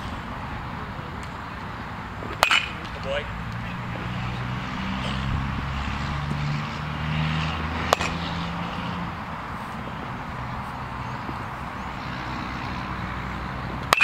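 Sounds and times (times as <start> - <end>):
baseball bat hitting ball: 2.2 - 3.2, 7.8 - 8.8, 13.7 - 14.0.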